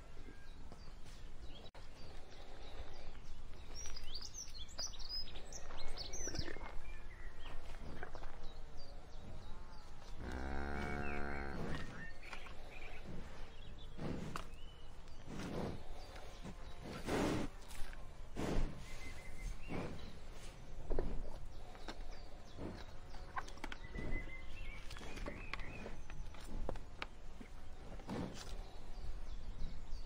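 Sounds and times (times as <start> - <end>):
small birds chirping: 0.0 - 30.0
cow mooing: 10.2 - 11.9
grass being cropped: 15.2 - 21.8, 24.9 - 28.8.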